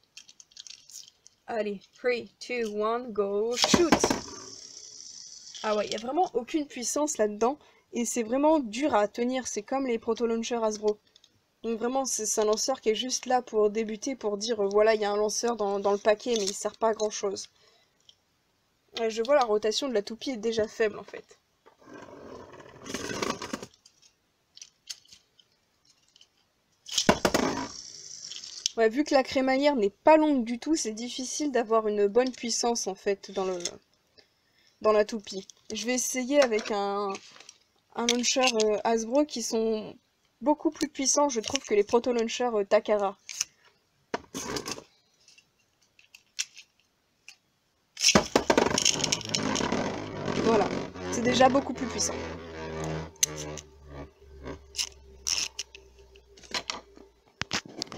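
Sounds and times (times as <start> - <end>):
small plastic clicks: 0.1 - 1.4
spinning top scraping plastic floor: 3.6 - 6.0, 21.8 - 23.7, 27.0 - 28.7, 48.2 - 56.7
spinning top clattering: 3.6 - 6.1, 26.9 - 28.8, 48.0 - 49.7.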